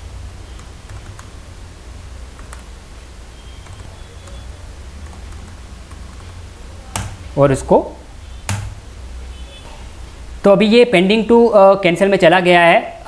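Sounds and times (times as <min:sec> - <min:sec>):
steady low hum: 0:00.0 - 0:11.0
computer keyboard clicks: 0:00.6 - 0:01.3, 0:02.4 - 0:02.7, 0:03.6 - 0:04.4, 0:05.0 - 0:07.2, 0:08.5 - 0:08.8.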